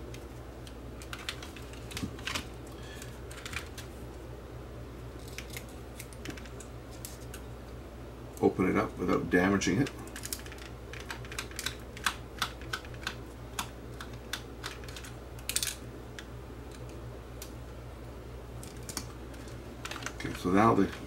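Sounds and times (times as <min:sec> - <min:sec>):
steady low hum: 0:00.0 - 0:21.0
plastic parts clicking: 0:18.6 - 0:21.0.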